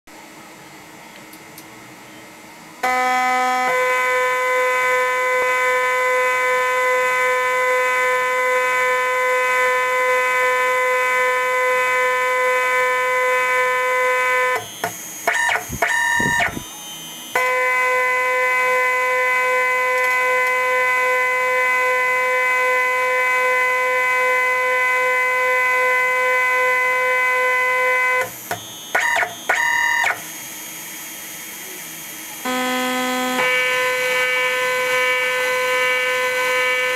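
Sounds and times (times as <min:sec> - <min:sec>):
stepper motors whining: 0:03.6 - 0:36.9.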